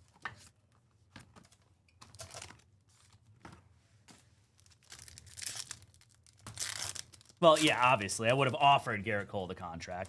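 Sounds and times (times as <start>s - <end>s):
foil wrapper crinkling and tearing: 2.1s - 2.7s, 4.6s - 7.9s.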